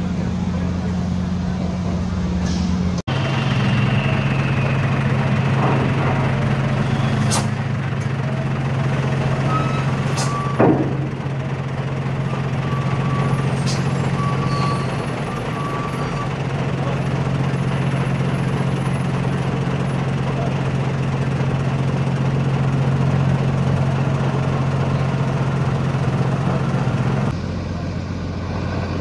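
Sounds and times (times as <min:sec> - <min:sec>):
diesel truck engine running: 0:00.0 - 0:29.0
high beeping: 0:12.1 - 0:16.4.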